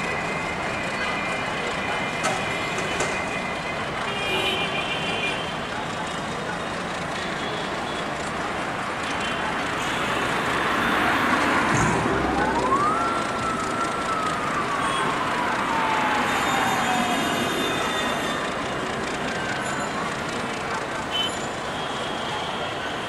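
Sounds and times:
diesel locomotive running: 0:05.5 - 0:23.0
rising and falling whine: 0:10.9 - 0:17.9.

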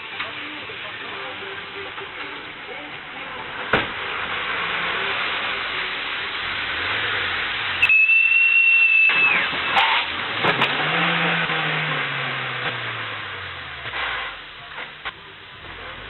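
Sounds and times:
steady hiss: 0:00.0 - 0:10.2
high clear whistle: 0:07.8 - 0:09.5.

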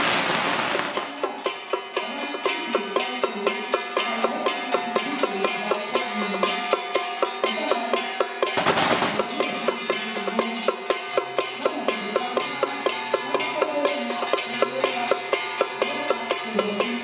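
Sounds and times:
sharp wooden beat: 0:08.4 - 0:09.8.

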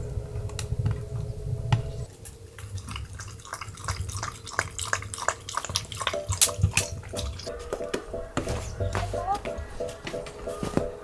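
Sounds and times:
dog lapping water from metal bowl: 0:02.6 - 0:07.5.

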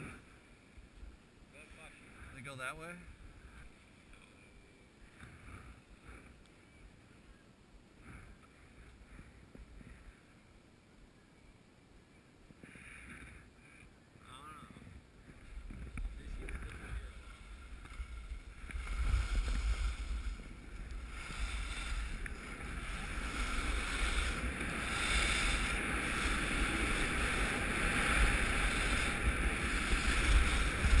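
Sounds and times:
wind rumble on microphone: 0:14.6 - 0:31.0
skis sliding over snow: 0:15.2 - 0:31.0.

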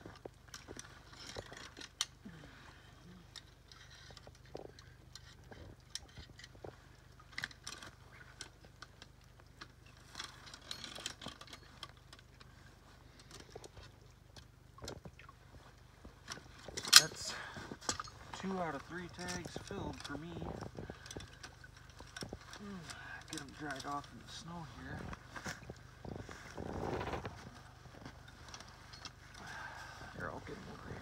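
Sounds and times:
rustling: 0:00.0 - 0:31.0.

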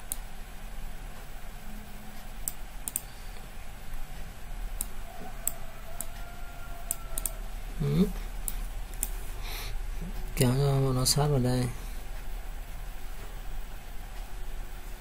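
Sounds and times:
computer mouse clicking: 0:00.0 - 0:00.2, 0:02.4 - 0:03.5, 0:04.8 - 0:07.4, 0:08.4 - 0:09.2
low steady hum: 0:00.0 - 0:15.0.

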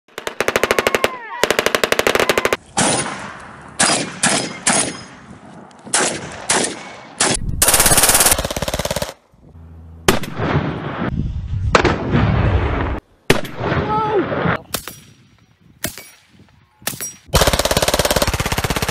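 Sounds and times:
automatic gunfire: 0:00.2 - 0:03.0, 0:05.9 - 0:09.2, 0:17.4 - 0:18.9
single gunshots: 0:02.3 - 0:05.2, 0:05.9 - 0:08.6, 0:10.1 - 0:11.1, 0:11.7 - 0:15.2.

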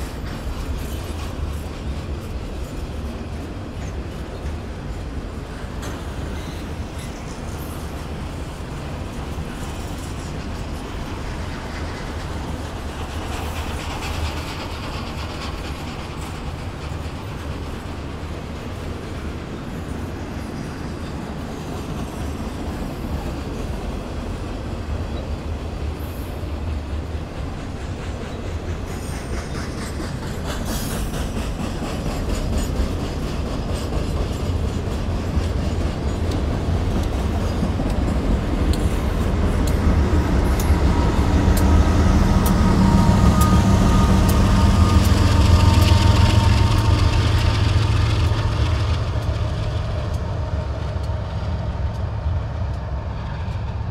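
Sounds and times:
diesel locomotive engines: 0:00.0 - 0:53.9
train wheels on rails: 0:00.0 - 0:53.9.

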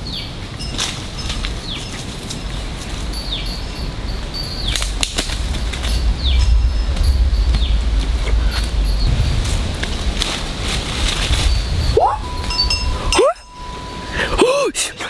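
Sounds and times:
sharp crackles: 0:00.7 - 0:14.2
high insect-like tone: 0:02.5 - 0:10.1
low rumble: 0:02.8 - 0:14.4.

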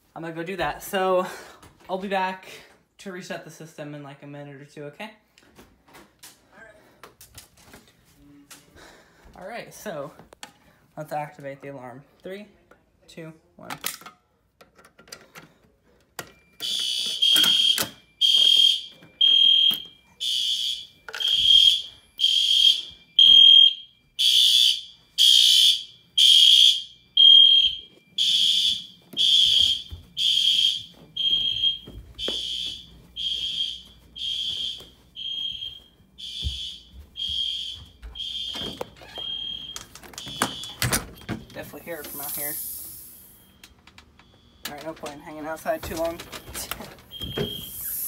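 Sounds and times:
fire alarm horns pulsing: 0:16.4 - 0:48.0.

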